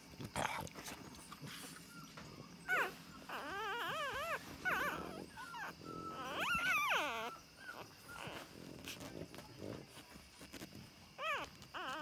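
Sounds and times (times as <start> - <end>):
puppies whimpering: 1.2 - 9.2, 11.2 - 12.0.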